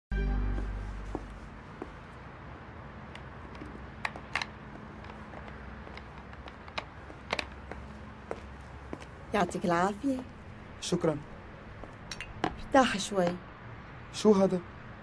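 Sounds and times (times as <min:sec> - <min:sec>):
high-heeled shoes clicking on paving: 0:03.1 - 0:10.3.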